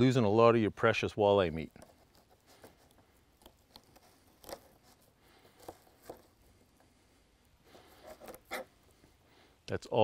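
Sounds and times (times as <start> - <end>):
knife crunching through fish bones: 3.3 - 4.8.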